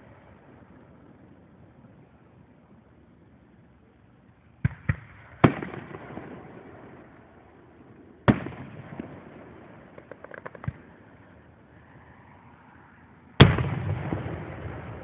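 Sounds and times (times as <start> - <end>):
fireworks bursting with bangs: 4.6 - 7.1, 8.2 - 11.0, 13.4 - 15.0.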